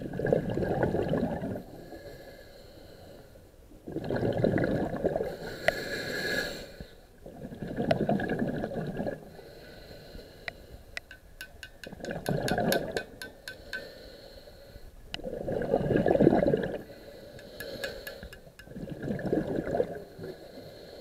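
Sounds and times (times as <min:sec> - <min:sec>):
air bubbles from regulator: 0:00.0 - 0:01.6, 0:03.9 - 0:05.2, 0:07.3 - 0:09.2, 0:11.8 - 0:13.2, 0:15.2 - 0:16.8, 0:18.5 - 0:20.0.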